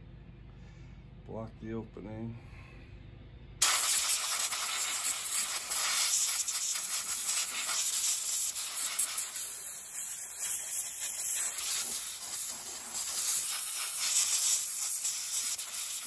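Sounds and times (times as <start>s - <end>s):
air blow gun hissing: 3.6s - 16.0s.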